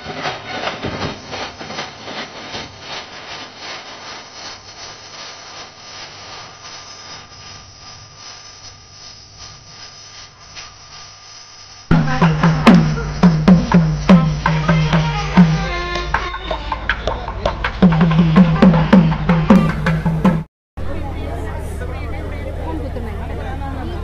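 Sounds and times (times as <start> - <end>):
festive drumming: 11.9 - 20.5
dining hall hubbub: 14.0 - 24.0.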